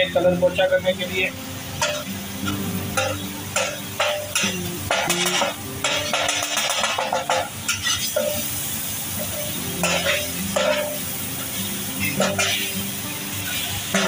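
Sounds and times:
food sizzling: 0.0s - 14.0s
metal spatula scraping a griddle: 1.8s - 8.6s, 9.2s - 12.8s, 13.4s - 14.0s.

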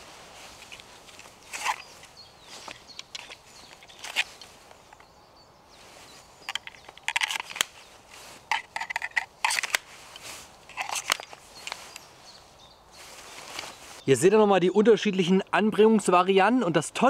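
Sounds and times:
scraping rustles: 0.0s - 5.0s, 5.8s - 14.1s.

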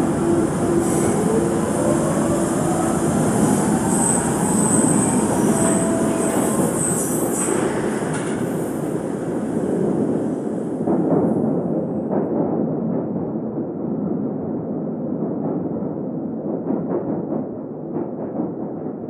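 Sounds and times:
underground train rumbling: 0.0s - 19.0s
high wheel squeal: 3.8s - 7.6s.

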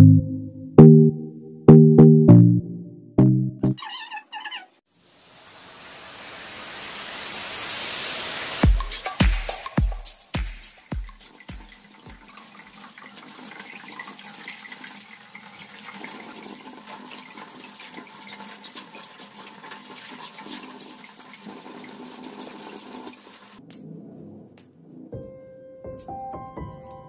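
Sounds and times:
tap water splashing into sink: 10.9s - 23.6s.

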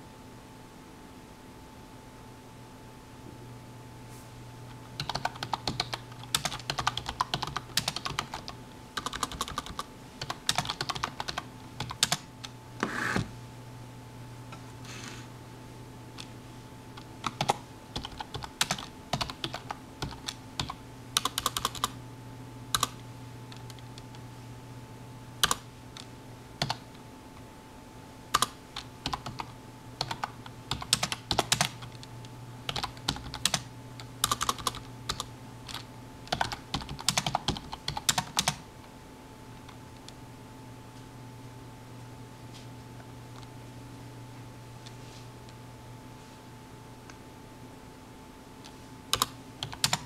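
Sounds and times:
low electrical hum: 0.0s - 50.0s
keyboard typing: 4.9s - 13.1s, 17.0s - 22.0s, 22.7s - 24.2s, 25.4s - 26.8s, 28.3s - 32.1s, 32.7s - 38.6s, 49.1s - 50.0s.

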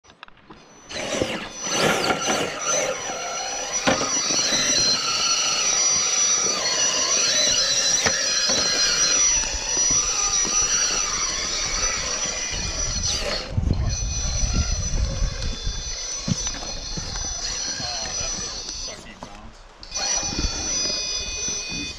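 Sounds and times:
toy car electric motor whining: 0.6s - 19.1s, 19.8s - 21.9s.

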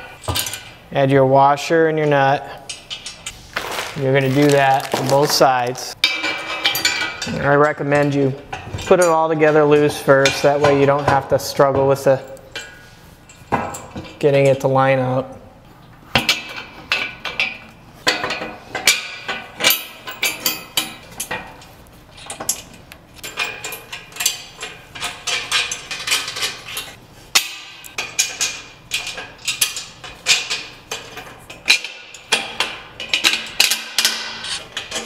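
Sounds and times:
metal hardware clinking: 0.0s - 0.8s, 2.6s - 9.6s, 16.2s - 35.0s.

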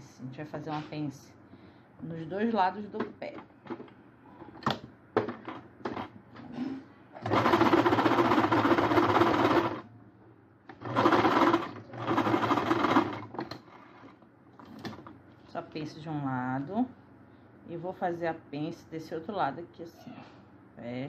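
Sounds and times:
sewing machine stitching: 5.9s - 9.8s, 10.7s - 14.2s.

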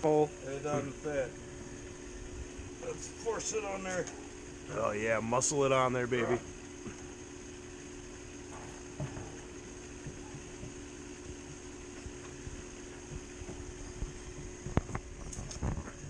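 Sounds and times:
steady hum: 0.0s - 16.0s
hose knocking on metal fitting: 8.6s - 12.4s.

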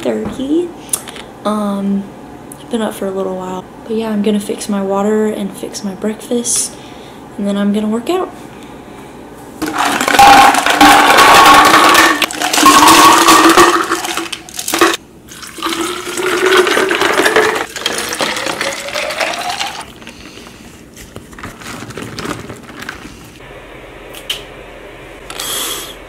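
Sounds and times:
water pouring into bottle: 9.6s - 20.1s.

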